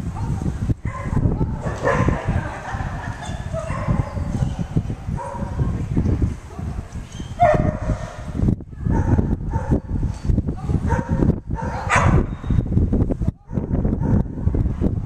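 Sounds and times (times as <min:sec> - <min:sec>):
dog barking: 0:00.9 - 0:02.2, 0:03.6 - 0:04.3, 0:05.2 - 0:05.6, 0:07.4 - 0:08.1, 0:08.9 - 0:09.8, 0:10.9 - 0:12.3, 0:13.5 - 0:14.4.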